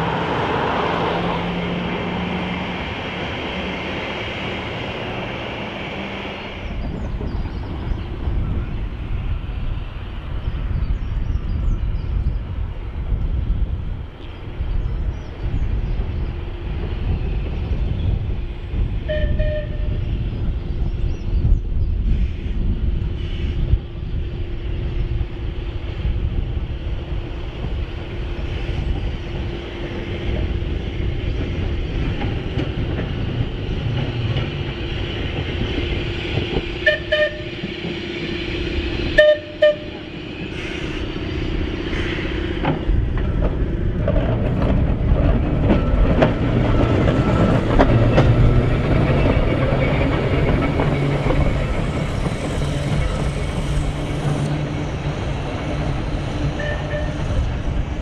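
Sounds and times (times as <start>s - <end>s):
electric tram hum and wheel rumble: 0.0s - 58.0s
tram horn toots: 19.0s - 20.1s, 36.0s - 42.8s, 56.4s - 57.6s.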